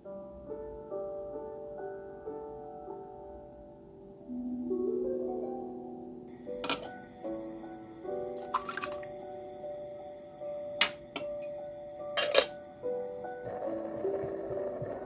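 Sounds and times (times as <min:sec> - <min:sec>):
slow melody of ringing notes: 0:04.3 - 0:15.0.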